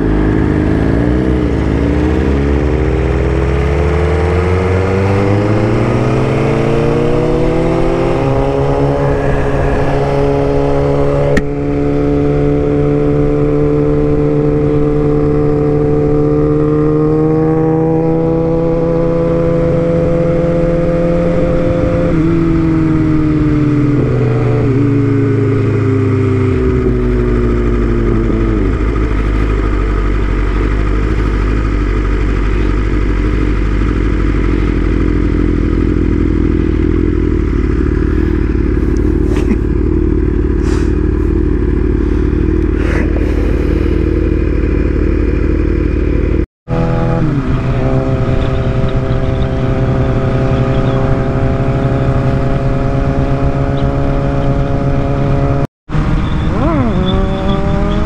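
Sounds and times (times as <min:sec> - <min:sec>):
motorcycle engine revving: 0:00.0 - 0:58.0
wind rushing: 0:05.2 - 0:13.0.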